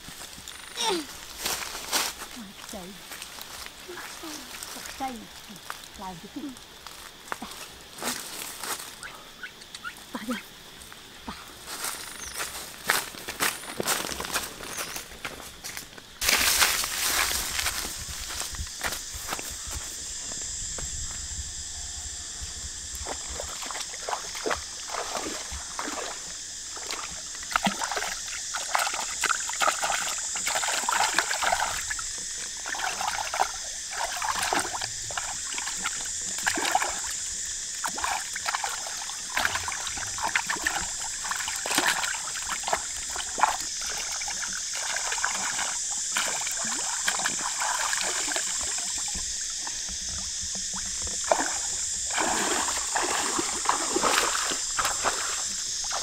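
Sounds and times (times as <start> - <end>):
water splashing and sloshing: 0.0 - 9.0, 22.9 - 56.0
steady high hiss: 0.0 - 56.0.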